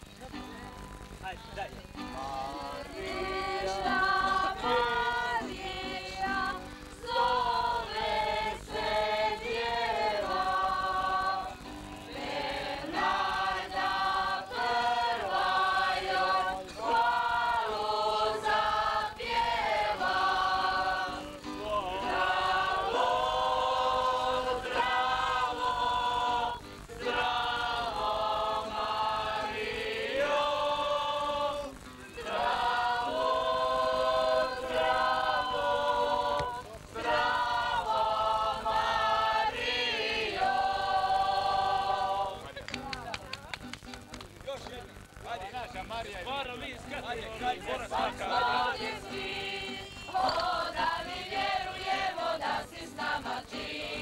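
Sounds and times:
acoustic guitar: 0.0 - 54.0
group singing in chorus: 2.1 - 42.6, 47.4 - 54.0.

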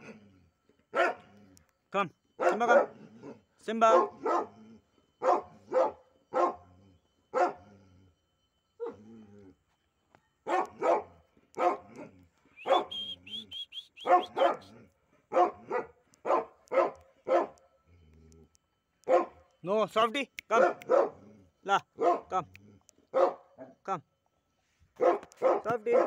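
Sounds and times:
dog barking: 0.9 - 1.4, 2.4 - 4.6, 5.2 - 6.7, 7.3 - 7.6, 10.4 - 13.1, 14.0 - 17.6, 19.0 - 19.4, 20.4 - 21.2, 22.0 - 22.5, 23.1 - 23.7, 25.0 - 26.0
high rising chirps: 12.6 - 14.7.

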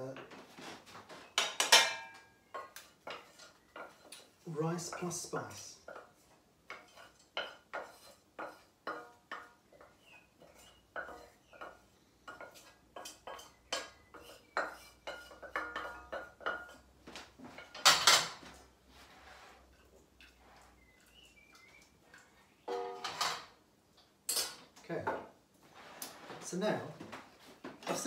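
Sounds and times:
metal spoon scraping a saucepan: 6.7 - 9.4, 12.3 - 16.9.

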